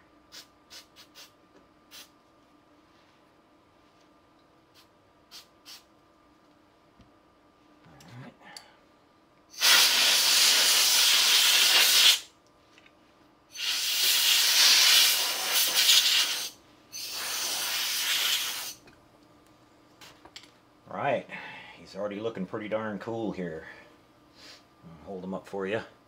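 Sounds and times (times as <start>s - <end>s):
compressed air hissing from nozzle: 0.3s - 2.2s, 4.7s - 5.9s, 9.5s - 12.3s, 13.5s - 18.8s.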